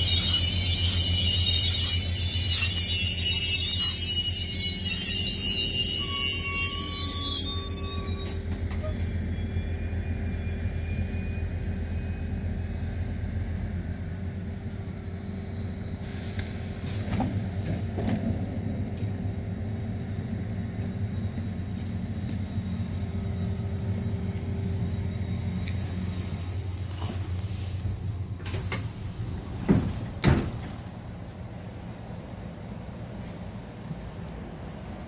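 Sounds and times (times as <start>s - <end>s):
diesel train idling: 0.0s - 35.0s.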